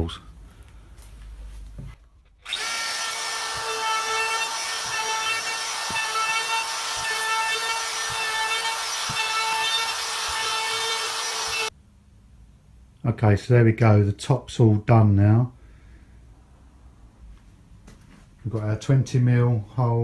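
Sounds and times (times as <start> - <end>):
router whining: 2.4 - 11.7.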